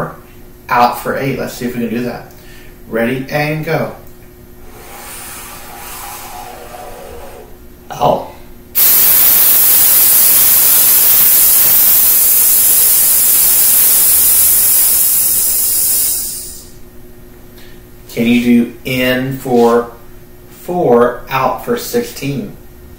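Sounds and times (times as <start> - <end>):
man hissing breath out: 4.6 - 7.5, 15.1 - 16.8.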